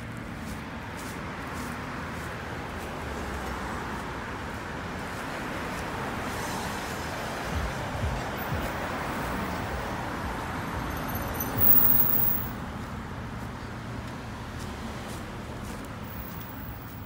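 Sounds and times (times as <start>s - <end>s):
road traffic passing: 0.0s - 17.0s.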